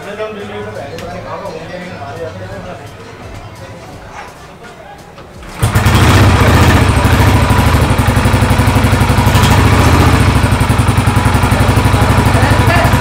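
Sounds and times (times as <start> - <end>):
motorcycle engine idling: 5.4 - 13.0.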